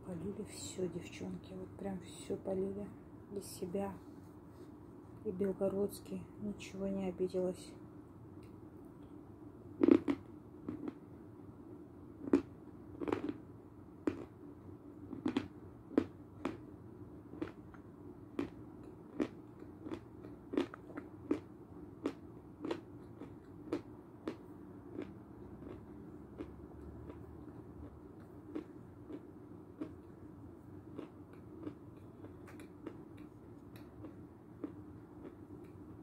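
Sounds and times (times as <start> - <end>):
crackly chewing crunches: 9.8 - 11.0, 12.2 - 14.4, 15.1 - 16.7, 17.3 - 35.9.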